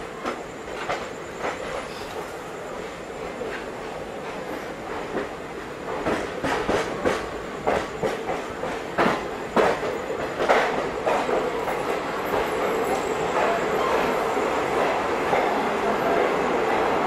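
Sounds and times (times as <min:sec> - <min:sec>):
train wheels clanking over rail joints: 0:04.3 - 0:14.2.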